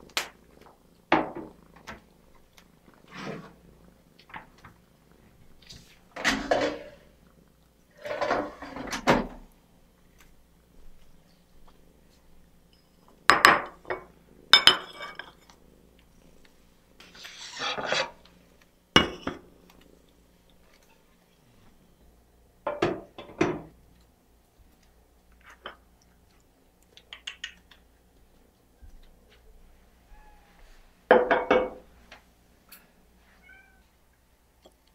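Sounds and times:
ceramic dishes clinking on stone: 0:13.3 - 0:15.4, 0:19.0 - 0:19.4.

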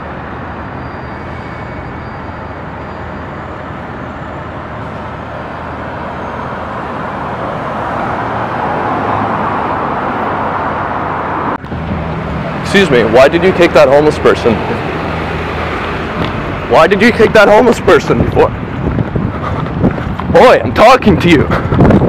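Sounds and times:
city traffic hum: 0:00.0 - 0:22.0
vehicle passing close: 0:03.6 - 0:20.4.

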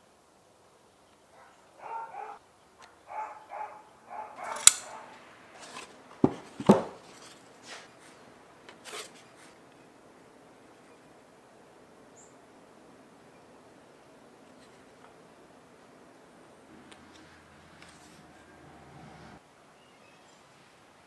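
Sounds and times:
sharp click: 0:04.4 - 0:05.0
workbench handling sounds: 0:04.4 - 0:09.6, 0:16.9 - 0:18.4
loud knocks: 0:06.2 - 0:07.0.

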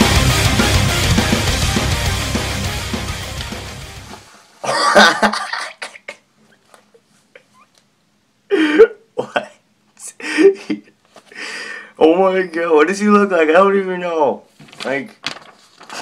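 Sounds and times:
loud rock music: 0:00.0 - 0:04.3
man laughing in bursts: 0:04.6 - 0:06.3, 0:08.5 - 0:11.0.

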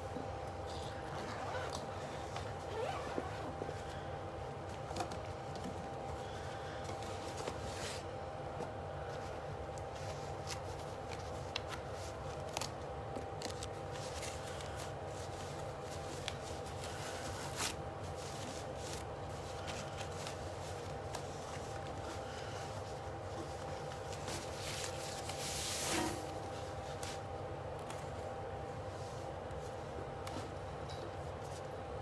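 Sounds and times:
steady background hum: 0:00.0 - 0:32.0
hands rustling packaging: 0:09.1 - 0:28.2.

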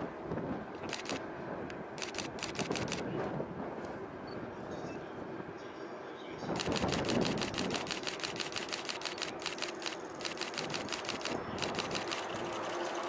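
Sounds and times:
camera shutters firing: 0:00.8 - 0:01.2, 0:02.0 - 0:03.2, 0:06.6 - 0:12.8.

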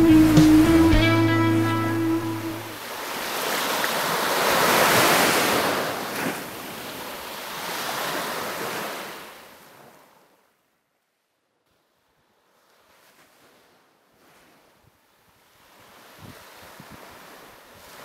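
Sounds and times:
surf washing onto shore: 0:00.0 - 0:09.9.

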